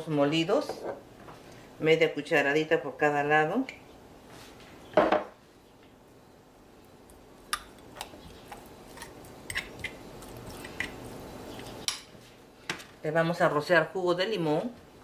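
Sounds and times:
metal spoon scraping and tapping: 0:09.0 - 0:10.0.

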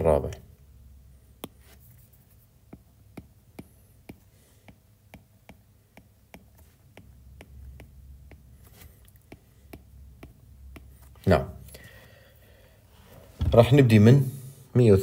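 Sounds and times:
stylus tapping on glass screen: 0:02.7 - 0:11.1.

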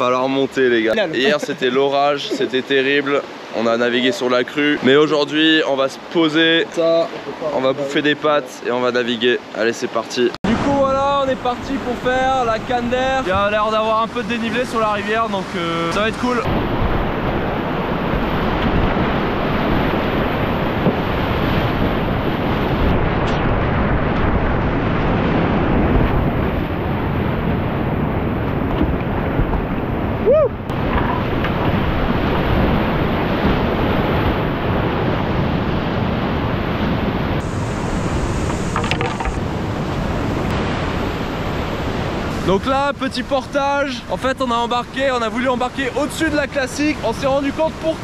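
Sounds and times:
whitewater rapids rushing: 0:10.5 - 0:23.0, 0:30.0 - 0:48.0
water splashing around boat: 0:10.5 - 0:48.0.

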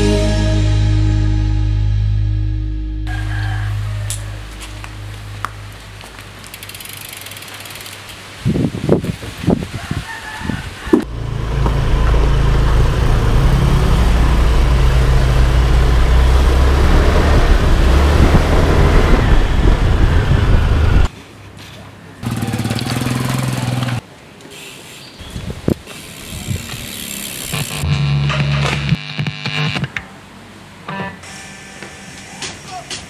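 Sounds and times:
motor scooter running: 0:03.8 - 0:08.0, 0:11.0 - 0:21.1, 0:22.2 - 0:24.0, 0:26.0 - 0:27.9
wind on microphone: 0:08.4 - 0:11.1, 0:16.8 - 0:21.1.

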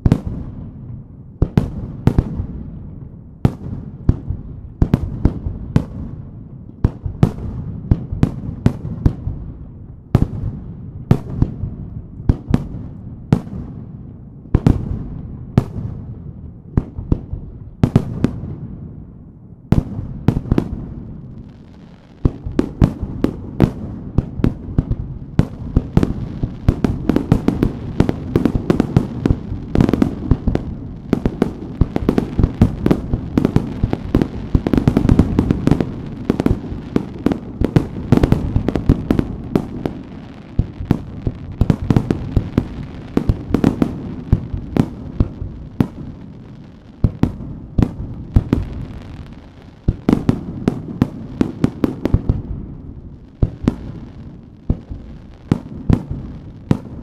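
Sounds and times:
firework barrage crackling: 0:00.0 - 0:57.0
firework bangs echoing: 0:19.7 - 0:57.0.

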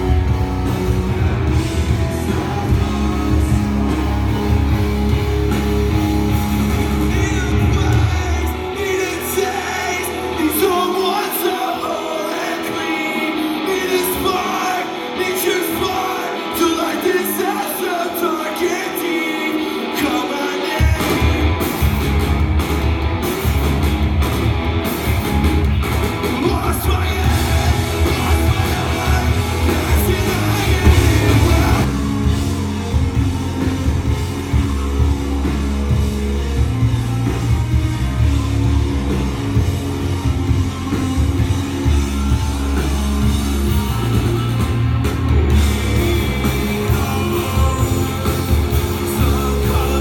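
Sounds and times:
live rock band playing: 0:00.0 - 0:50.0
person singing: 0:01.1 - 0:05.1, 0:06.6 - 0:21.6, 0:26.3 - 0:32.7, 0:40.2 - 0:50.0.

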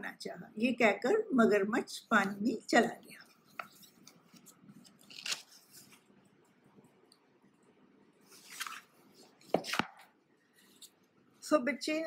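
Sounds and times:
paper pages rustling: 0:03.3 - 0:06.1, 0:08.2 - 0:11.0.

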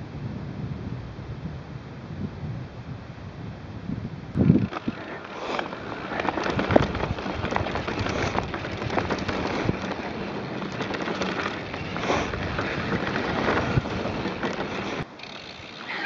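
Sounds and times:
bike knocks and rattles: 0:04.4 - 0:15.8
tyres crackling over stones: 0:04.4 - 0:16.0.

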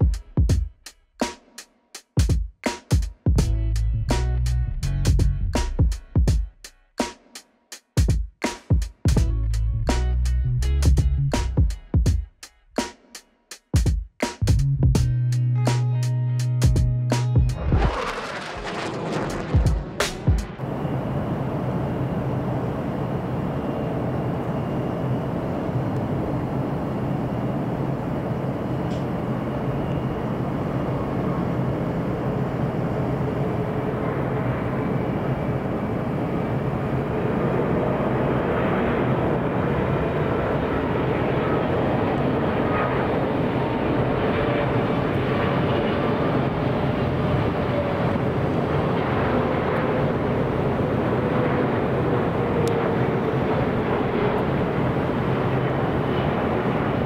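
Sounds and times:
jet engine rumble and whine: 0:17.5 - 0:57.0.

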